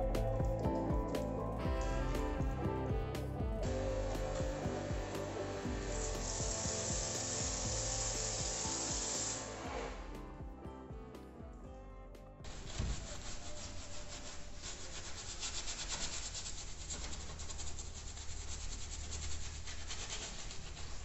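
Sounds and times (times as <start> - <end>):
wash mitt rubbing on car: 12.5 - 21.0.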